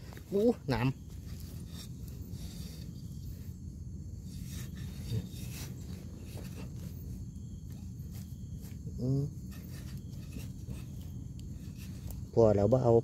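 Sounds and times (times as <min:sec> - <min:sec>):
hand digging in loose soil: 0:00.0 - 0:12.4
steady low rumble: 0:00.0 - 0:12.4.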